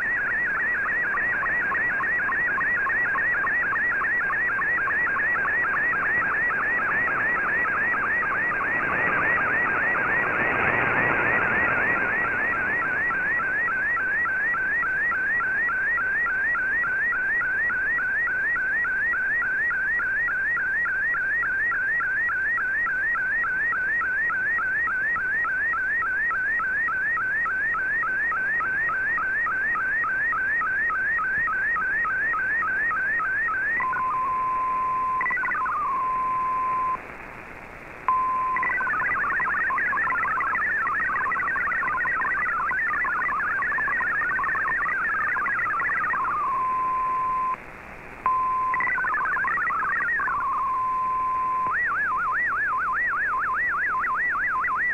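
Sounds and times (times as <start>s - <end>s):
multi-tone digital text signal: 33.8s - 37.0s, 38.1s - 47.6s, 48.3s - 54.9s.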